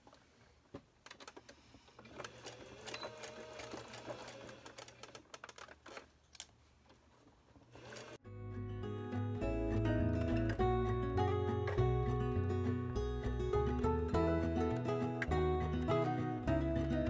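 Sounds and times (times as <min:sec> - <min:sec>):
sewing machine running: 0:02.1 - 0:05.1, 0:07.7 - 0:08.2.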